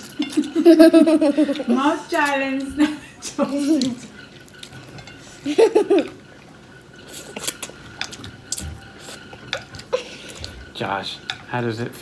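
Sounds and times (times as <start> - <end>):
children slurping noodles: 2.8 - 10.8.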